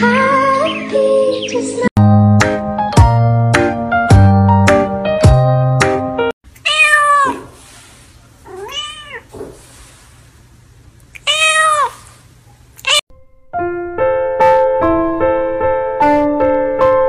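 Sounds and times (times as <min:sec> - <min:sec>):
cat meowing: 0:06.6 - 0:07.6, 0:08.4 - 0:09.3, 0:11.2 - 0:12.2, 0:12.8 - 0:13.0.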